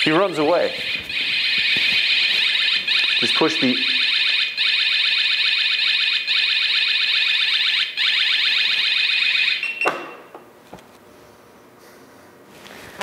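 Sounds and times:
shrill alarm siren chirps: 0.3 - 10.1.

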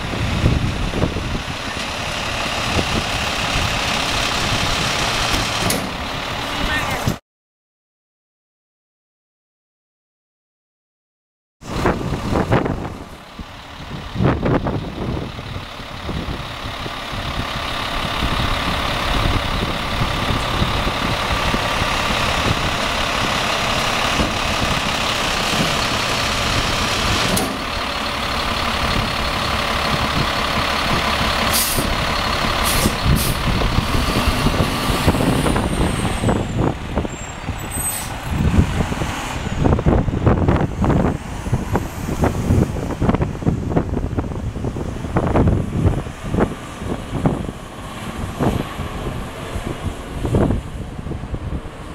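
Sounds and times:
wind on microphone: 0.0 - 5.2, 11.6 - 27.4, 31.8 - 51.9
truck pulling away: 0.0 - 7.1, 11.6 - 51.9
air brake hisses: 31.5 - 31.9, 32.6 - 33.4.

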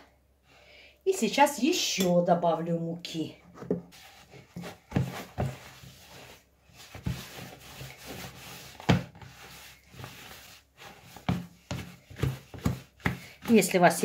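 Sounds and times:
dough rubbing and scraping: 3.5 - 14.0
dough slapping in plastic bowl: 3.8 - 14.0.

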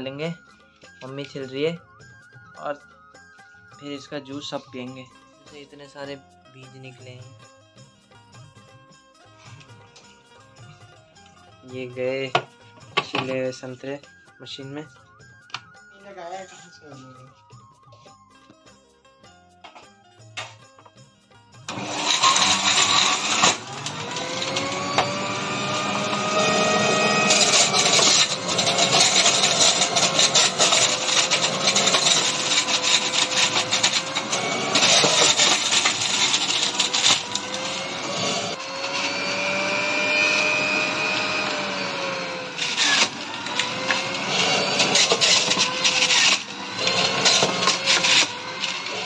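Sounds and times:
juicer motor whine: 21.6 - 49.0
fruit grinding on grater: 21.7 - 49.0.

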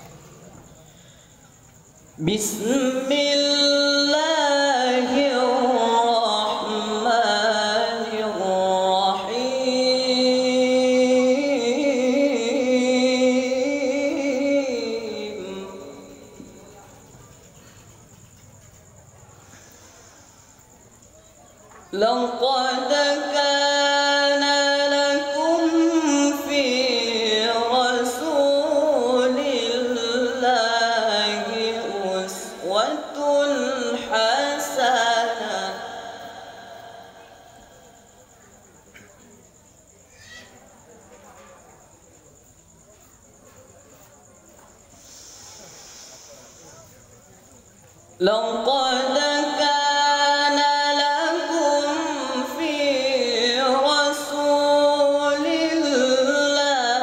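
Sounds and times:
person reciting melodically: 0.0 - 39.3, 48.1 - 57.0
young man chanting into a microphone: 1.8 - 17.2, 19.6 - 38.5, 48.2 - 57.0.

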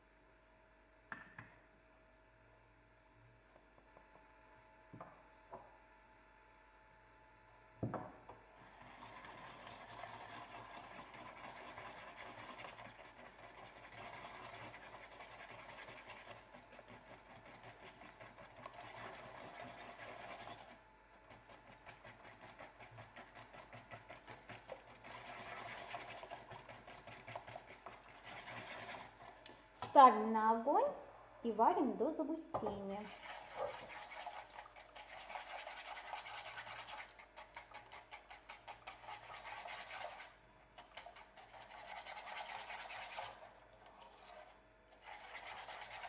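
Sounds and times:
knock: 1.1 - 1.6, 7.8 - 8.2
whisk beating in saucepan: 8.5 - 30.0, 32.5 - 46.0.

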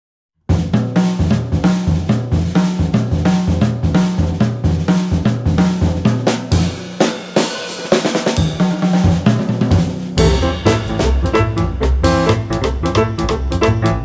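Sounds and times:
drum kit beat: 0.5 - 14.0
bass line: 10.2 - 14.0.

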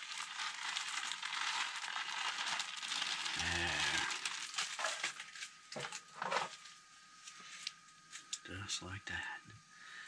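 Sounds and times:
frying pan sizzling: 0.0 - 4.9
plastic bag crinkling: 0.0 - 6.8.

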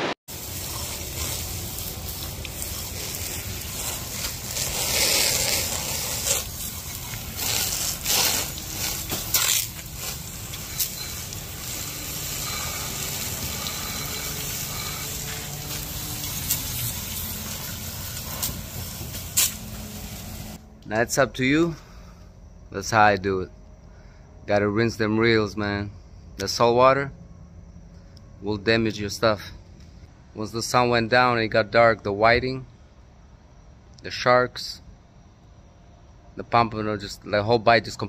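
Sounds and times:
hose water spraying: 0.3 - 20.6
water splashing: 0.3 - 20.6.

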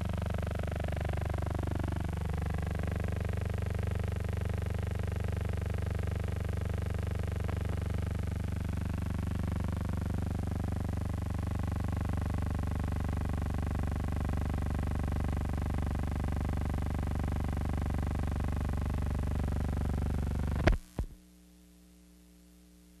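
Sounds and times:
low throbbing hum: 0.0 - 13.8.

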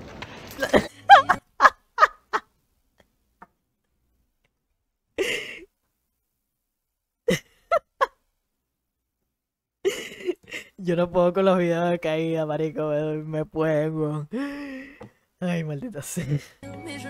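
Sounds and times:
man laughing: 0.6 - 2.5, 9.9 - 10.8, 16.1 - 16.6.

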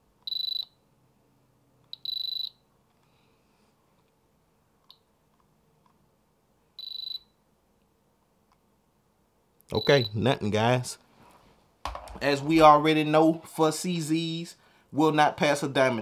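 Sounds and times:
electronic tester beeping: 0.3 - 0.8, 1.9 - 2.6, 6.8 - 7.4.

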